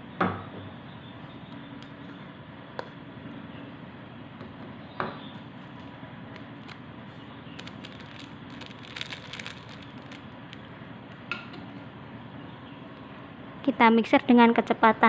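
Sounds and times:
sachet crinkling: 5.5 - 6.8, 7.5 - 10.7.

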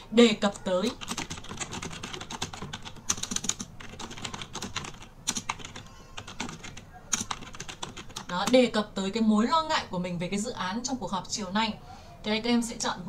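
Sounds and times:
computer keyboard typing: 0.4 - 8.6.

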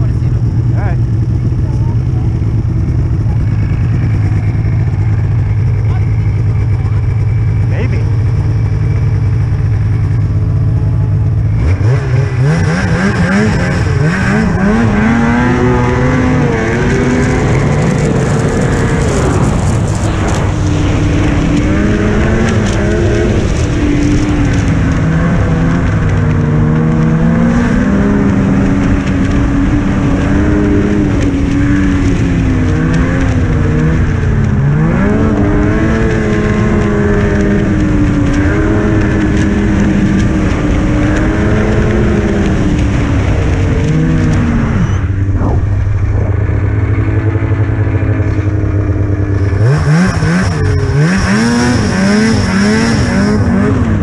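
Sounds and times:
snowmobile engine revving: 0.0 - 54.0.

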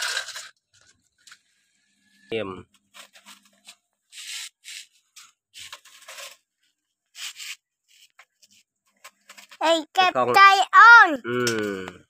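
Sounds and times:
toy excavator scraping sandy dirt: 0.0 - 0.9, 3.1 - 6.4.

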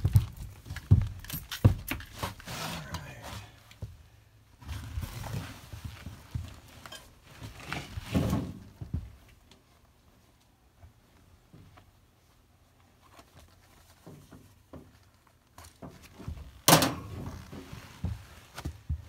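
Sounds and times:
clothing and gear rustling: 0.0 - 4.0, 4.6 - 19.0.

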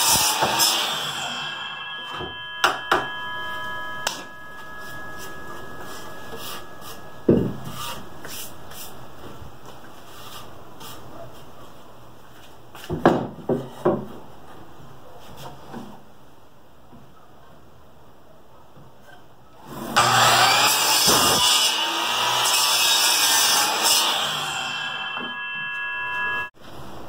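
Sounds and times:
saw blade spinning down: 0.0 - 7.3.

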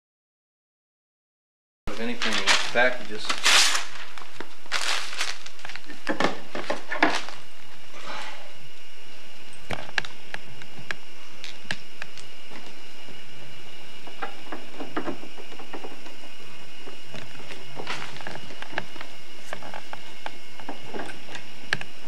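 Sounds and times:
paper and plastic packaging rustling: 1.9 - 7.4.

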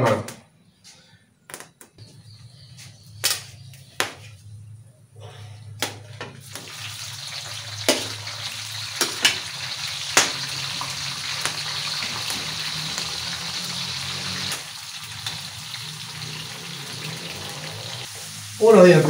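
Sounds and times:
peppers sizzling in oil: 6.4 - 19.0.

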